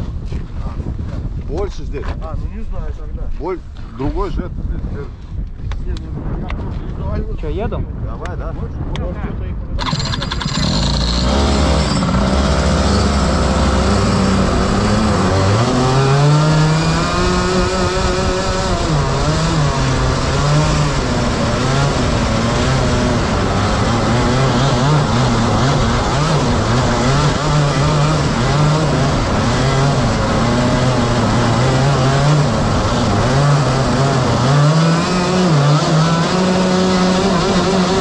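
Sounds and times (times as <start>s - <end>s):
kart engines revving: 9.8s - 38.0s.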